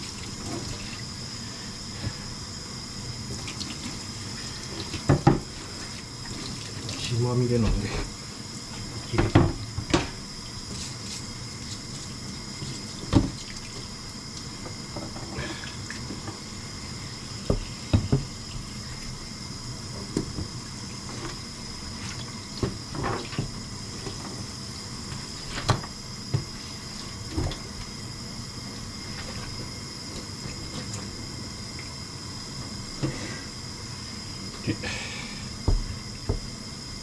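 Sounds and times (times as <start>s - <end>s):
knocks and clatters in sink: 4.9s - 5.5s, 9.1s - 10.2s.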